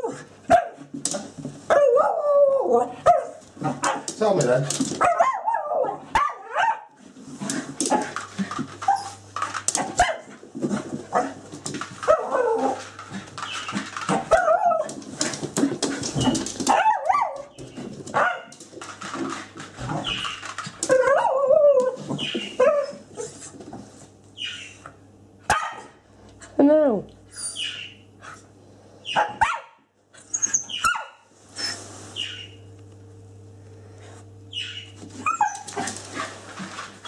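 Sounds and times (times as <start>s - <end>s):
dog whining and yapping: 8.8s - 9.2s, 13.4s - 15.0s, 19.9s - 23.4s, 27.3s - 28.0s, 30.2s - 32.5s, 34.5s - 35.9s.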